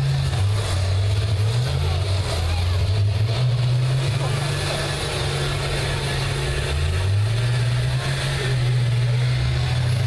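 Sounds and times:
bus engines revving: 0:00.0 - 0:10.0.

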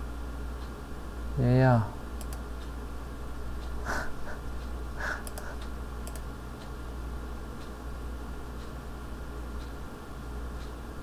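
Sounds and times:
computer mouse clicking: 0:02.2 - 0:02.7, 0:05.0 - 0:06.3.

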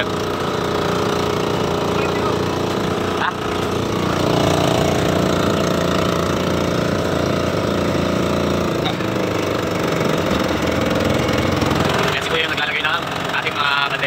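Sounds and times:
boat engine pounding drone: 0:00.0 - 0:14.0.

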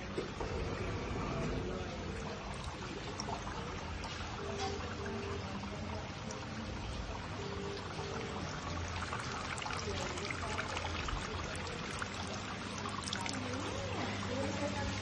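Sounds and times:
water falling onto water wheel: 0:00.0 - 0:15.0
water spilling over fountain bowls: 0:00.0 - 0:15.0.

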